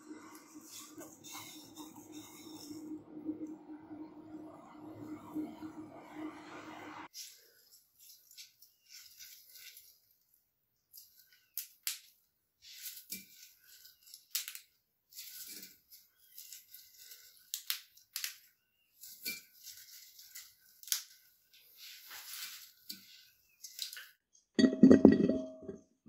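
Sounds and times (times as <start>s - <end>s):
rustling and crackling of petals: 7.1s - 24.2s.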